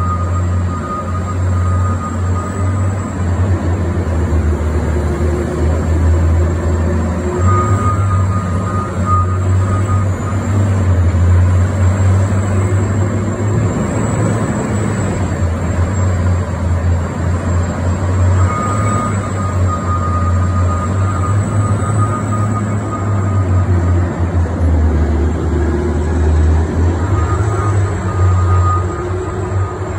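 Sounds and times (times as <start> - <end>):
diesel engine low drone: 0.0 - 29.9
thin high whine: 25.6 - 29.9.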